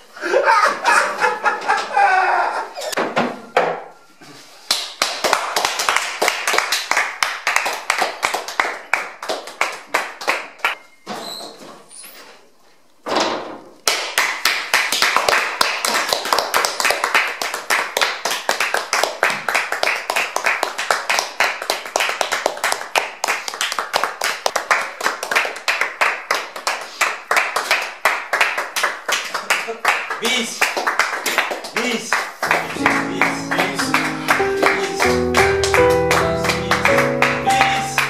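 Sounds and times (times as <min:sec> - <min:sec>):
people clapping: 0:04.6 - 0:10.8, 0:13.8 - 0:38.0.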